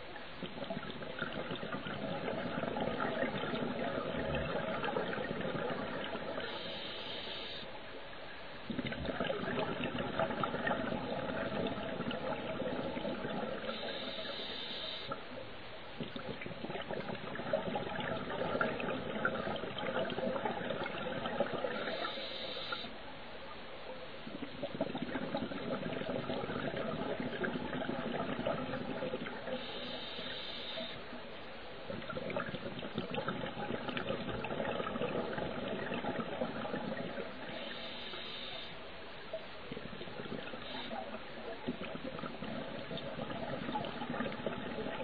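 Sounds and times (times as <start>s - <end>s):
bubbling exhaust bubbles: 0.0s - 6.8s, 8.6s - 14.5s, 15.9s - 22.9s, 24.2s - 30.3s, 31.2s - 38.5s, 39.3s - 45.0s
regulator hiss: 6.4s - 7.8s, 13.6s - 15.3s, 21.8s - 23.0s, 29.5s - 31.1s, 37.5s - 38.8s.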